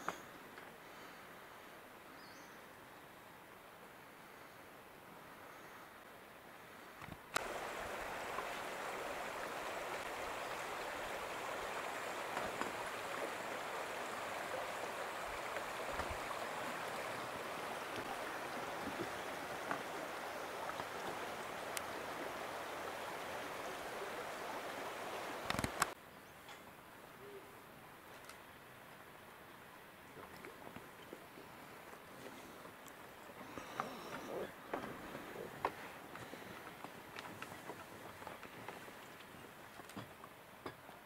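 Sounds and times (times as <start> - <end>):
creek flowing over stones: 7.3 - 26.0, 34.6 - 41.0.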